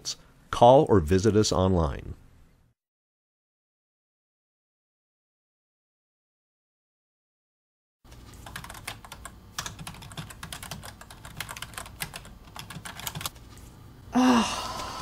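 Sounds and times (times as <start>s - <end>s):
fast typing on keyboard: 8.1s - 13.4s
person groaning in pain: 14.1s - 15.0s.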